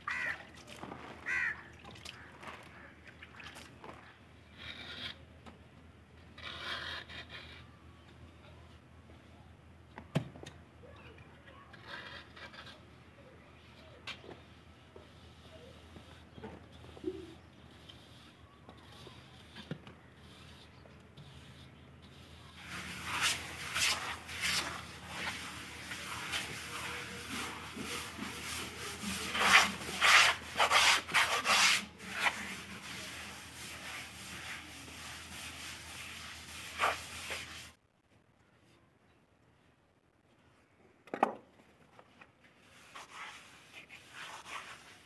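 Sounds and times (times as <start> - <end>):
plaster float scraping on wall: 3.9 - 5.2, 6.3 - 7.7, 11.7 - 12.8, 16.8 - 37.8, 42.7 - 45.0.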